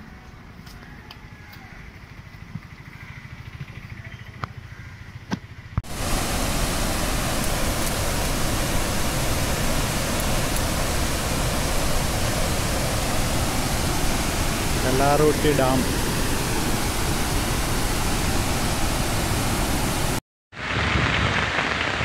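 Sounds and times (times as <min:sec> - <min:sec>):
water rushing through spillway: 0:05.8 - 0:22.0.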